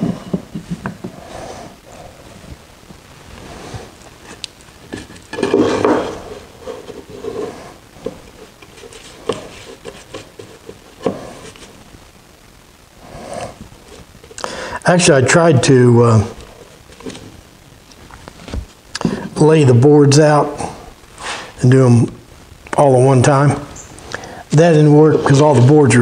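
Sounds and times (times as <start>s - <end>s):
wooden strips tapping and rubbing: 0.0s - 1.2s, 4.2s - 11.8s.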